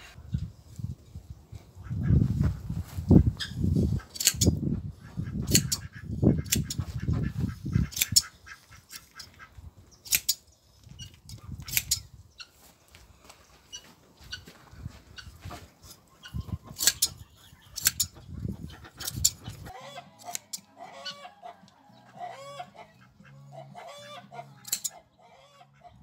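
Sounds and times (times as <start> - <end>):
shears snipping fleece: 5.5 - 7.0, 7.9 - 8.3, 10.1 - 10.4, 11.6 - 12.0, 16.7 - 17.1, 17.8 - 18.2, 20.2 - 20.7, 24.6 - 25.0.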